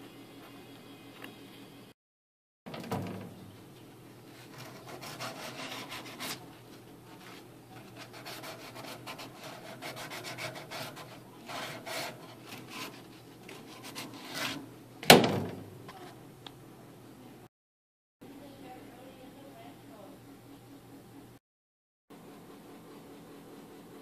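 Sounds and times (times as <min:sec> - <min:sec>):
scraping and rubbing on plastic: 0:04.3 - 0:14.7.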